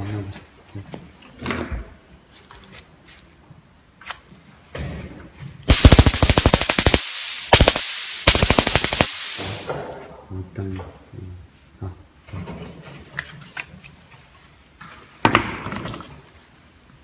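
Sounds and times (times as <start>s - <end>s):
stun gun electric crackle: 5.7s - 9.7s.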